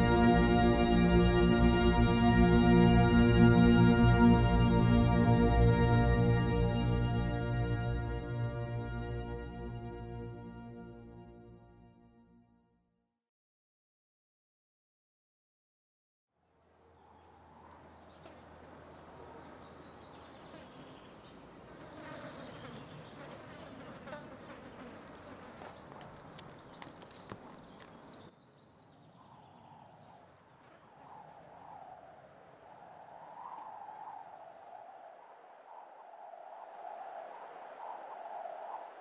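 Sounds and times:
low wavering tone: 0:00.0 - 0:11.9
insects buzzing and chirping: 0:17.5 - 0:28.4, 0:29.1 - 0:38.9.

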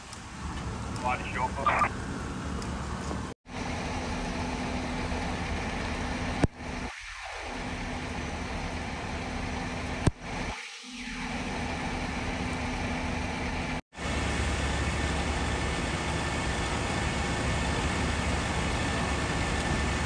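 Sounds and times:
fire trucks idling: 0:00.0 - 0:06.8, 0:12.4 - 0:20.0
street traffic in rain: 0:00.0 - 0:10.6, 0:11.3 - 0:20.0.

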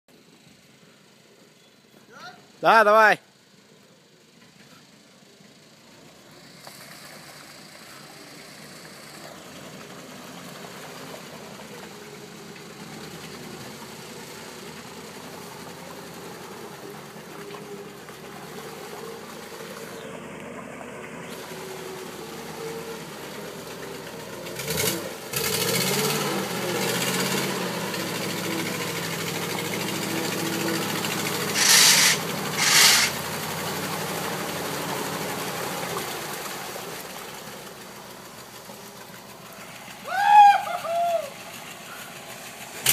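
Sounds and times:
snow vehicle engine revving: 0:06.9 - 0:42.9
short loud bursts: 0:31.6 - 0:33.2.

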